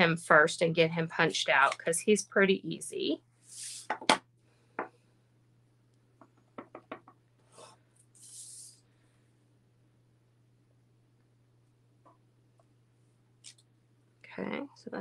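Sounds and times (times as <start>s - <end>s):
paper sliding across mat: 3.4s - 3.9s, 7.5s - 8.8s.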